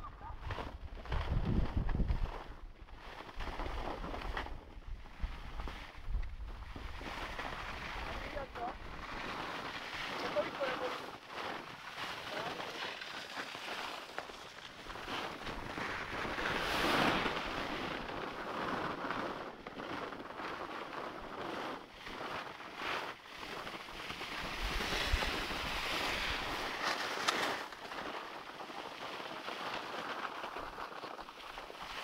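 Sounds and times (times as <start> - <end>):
wind buffeting microphone: 0.0 - 3.0
skis scraping over snow: 0.2 - 32.0.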